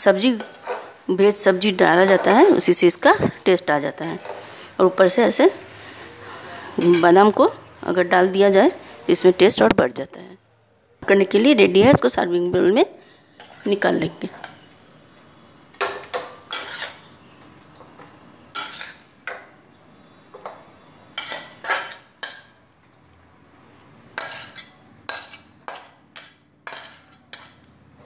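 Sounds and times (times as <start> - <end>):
spoon scraping metal pan: 0.0 - 2.9, 3.7 - 5.6, 6.3 - 7.6, 13.3 - 14.8, 16.1 - 17.1, 18.5 - 19.2, 21.2 - 22.5, 24.2 - 27.7.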